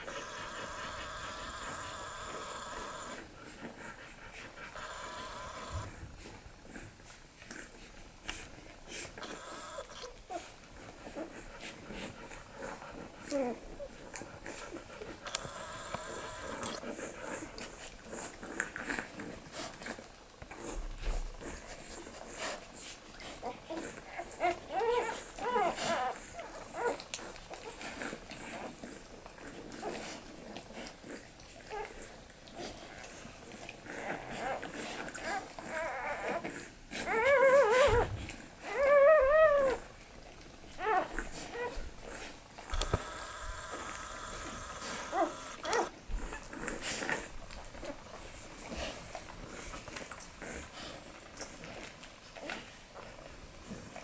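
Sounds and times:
puppy crying: 0.0 - 3.3, 4.7 - 5.9, 15.4 - 16.8, 23.4 - 27.1, 35.2 - 39.9, 40.8 - 42.2, 42.8 - 46.5
puppies suckling: 0.0 - 54.0.

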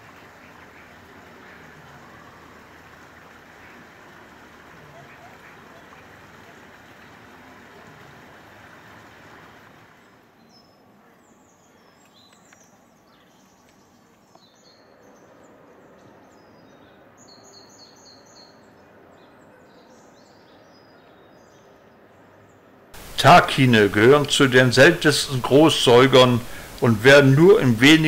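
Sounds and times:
small birds chirping: 10.4 - 28.0.

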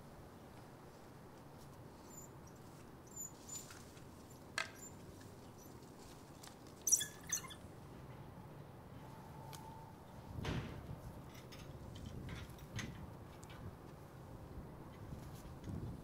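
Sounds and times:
squeaky dog calls: 6.9 - 7.6.

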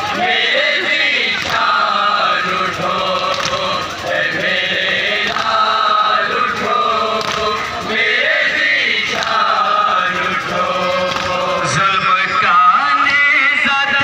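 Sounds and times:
men chanting in a group: 0.0 - 14.0
hands slapping chests: 3.3 - 3.7, 5.3 - 5.6, 7.2 - 7.5, 11.1 - 11.4.

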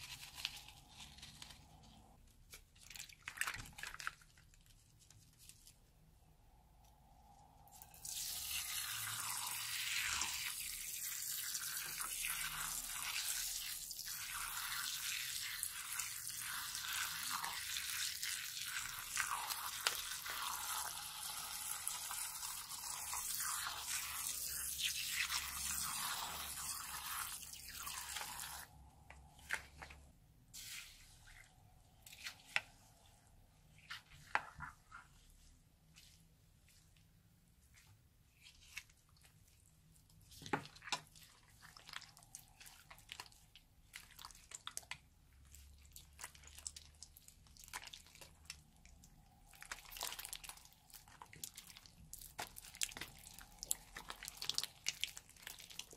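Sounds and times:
slime pouring onto foam beads: 7.7 - 29.8, 45.9 - 55.9.

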